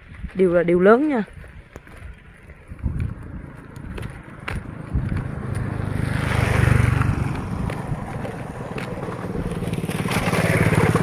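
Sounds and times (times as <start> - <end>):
small motorbike engine running: 1.9 - 11.0.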